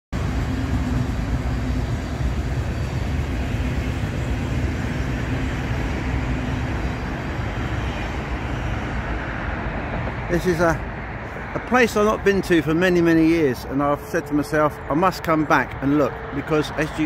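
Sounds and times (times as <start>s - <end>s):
low hum: 0.2s - 10.2s
train wheels rumbling on rails: 0.2s - 17.0s.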